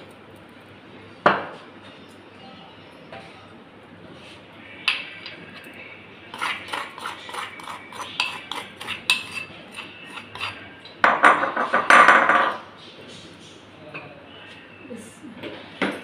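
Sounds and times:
spoon scraping clay bowl: 6.3 - 10.8.

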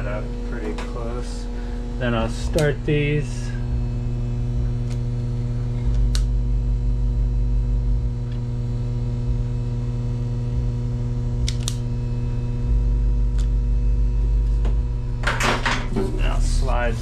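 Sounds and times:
electrical hum: 0.0 - 17.0
lighter clicking: 5.9 - 6.3, 11.4 - 11.8.

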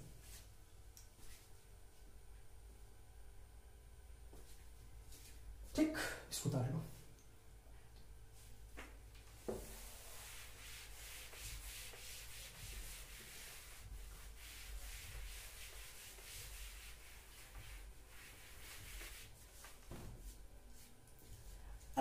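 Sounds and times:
cloth wiping chalk off blackboard: 9.3 - 21.9.

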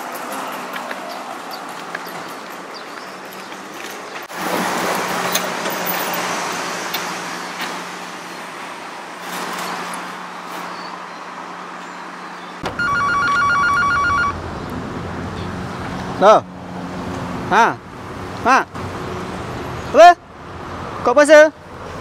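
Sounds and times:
street traffic noise: 0.0 - 22.0
mobile phone ringtone: 12.6 - 14.4.

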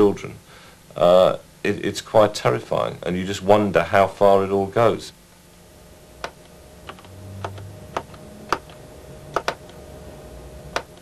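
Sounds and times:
faint steady hum: 0.0 - 11.0
keyboard keystrokes: 6.2 - 9.8.

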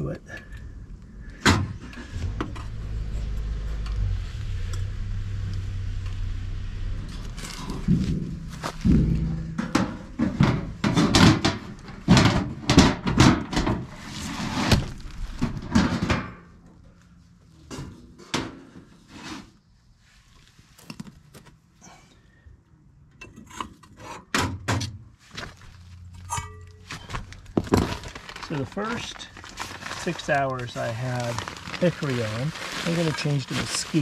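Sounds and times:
wooden smoker cover knocks and rattling: 8.0 - 14.0.

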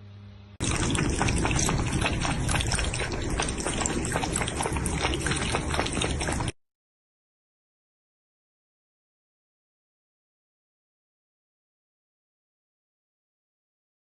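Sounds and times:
cats lapping water: 0.6 - 6.6.

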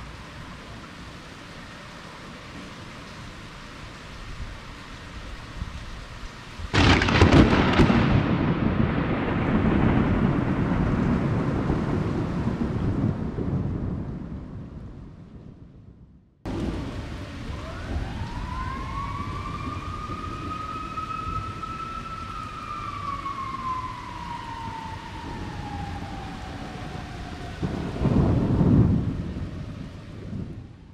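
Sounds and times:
steady rain: 0.0 - 30.9
thunder rumbling: 6.7 - 30.9
siren wailing: 16.8 - 30.2.

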